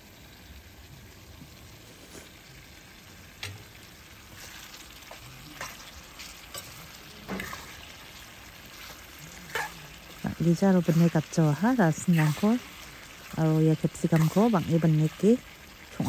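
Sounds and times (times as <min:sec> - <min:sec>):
food sizzling in a wok: 0:00.0 - 0:16.0
spatula scraping and knocking pan: 0:04.3 - 0:15.4.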